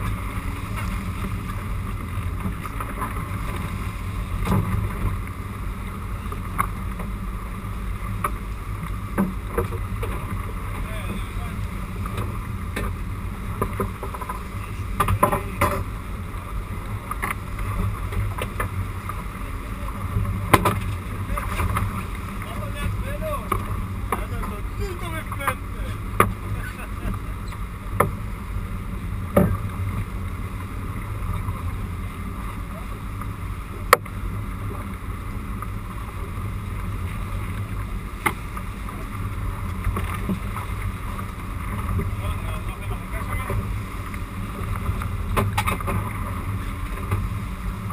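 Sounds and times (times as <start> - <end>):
boat engine rumble: 0.0 - 47.9
wind and water noise: 0.0 - 47.9.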